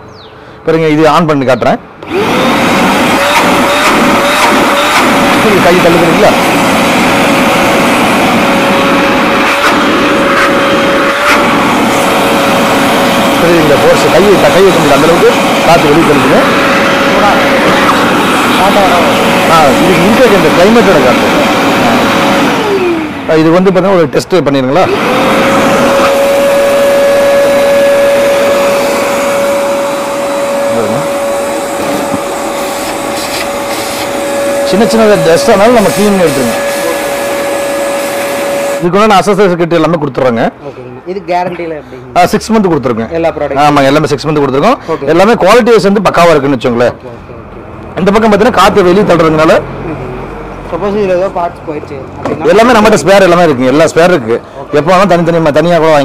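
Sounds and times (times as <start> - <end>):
vacuum cleaner whining: 2.0 - 39.6.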